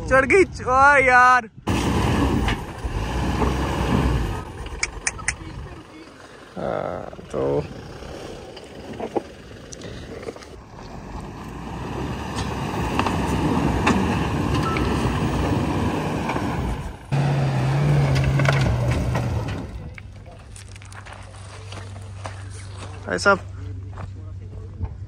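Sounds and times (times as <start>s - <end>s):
diesel engine revving: 1.7s - 20.2s
tyres spinning spraying dirt: 1.7s - 23.0s.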